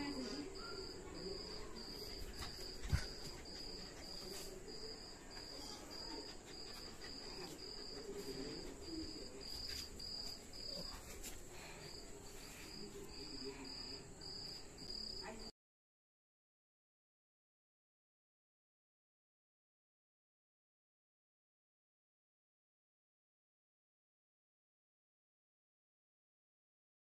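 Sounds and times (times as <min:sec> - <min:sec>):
cricket chirping: 0:00.0 - 0:15.5.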